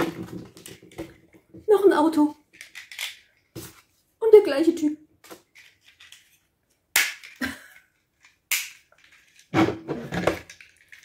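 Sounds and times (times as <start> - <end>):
plastic toy parts clicking: 2.5 - 3.3, 5.5 - 7.5, 10.4 - 11.0.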